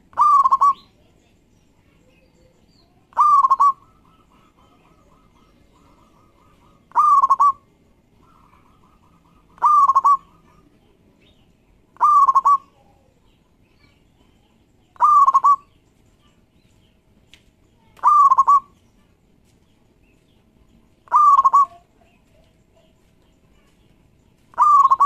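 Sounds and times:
dove cooing: 0.0 - 0.9, 3.1 - 10.8, 12.0 - 13.1, 15.0 - 15.7, 18.0 - 18.7, 21.0 - 22.9, 24.5 - 25.0.

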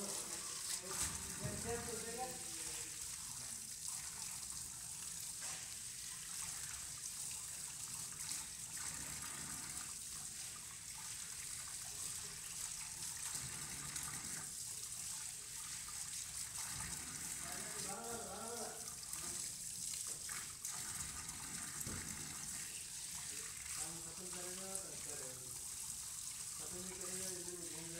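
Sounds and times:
hands rinsing under water: 0.0 - 3.6
tap water running into sink: 0.0 - 27.9.

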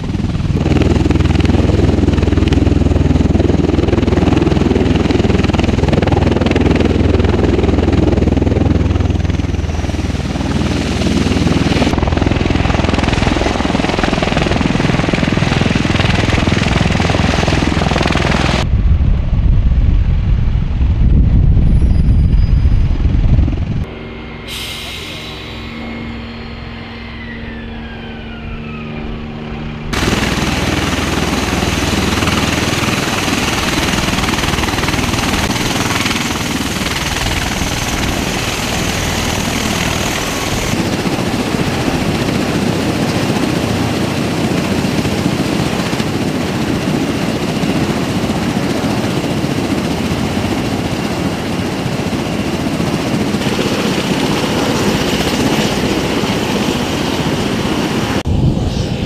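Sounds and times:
aircraft engines and rotors running: 0.0 - 59.0
whine falling in pitch: 23.9 - 30.0.

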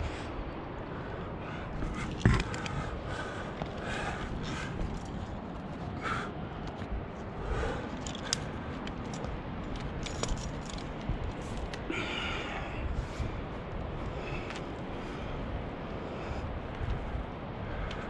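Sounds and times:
wind rumbling on microphone: 0.0 - 18.0
climbing hardware clinking: 7.8 - 11.8.

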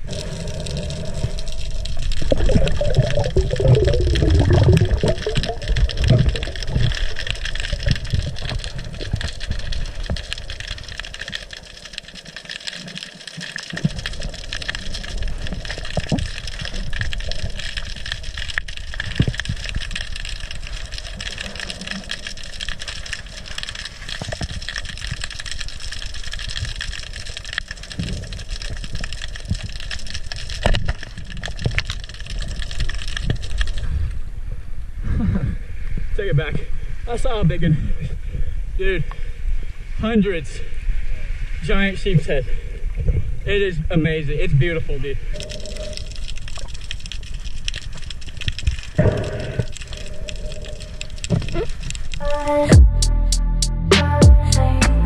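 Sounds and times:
steady underwater hum: 0.0 - 31.3
water rushing and bubbling: 0.0 - 52.7
faint clicks: 45.3 - 52.7.

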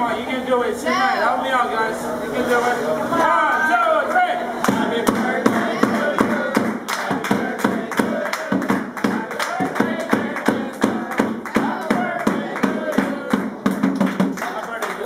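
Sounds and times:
group singing: 3.0 - 14.1
rhythmic hand clapping: 4.6 - 15.0.

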